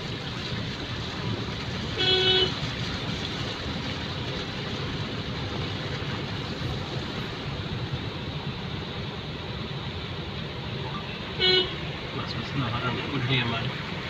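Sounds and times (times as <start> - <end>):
outdoor street noise: 0.0 - 14.0
vehicle horn beep: 2.0 - 2.6, 11.4 - 11.9.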